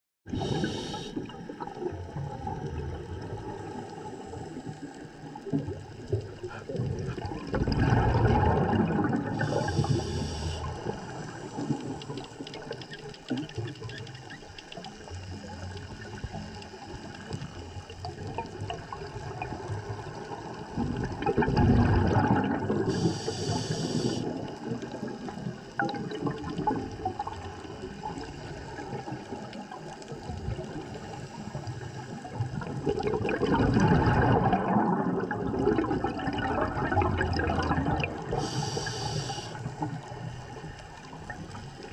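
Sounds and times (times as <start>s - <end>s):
scuba regulator hissing inhalations: 0.3s - 1.3s, 9.3s - 12.0s, 22.8s - 24.5s, 38.2s - 39.8s
gurgling exhaled bubbles: 0.3s - 41.9s
steady watery wash: 0.3s - 41.9s.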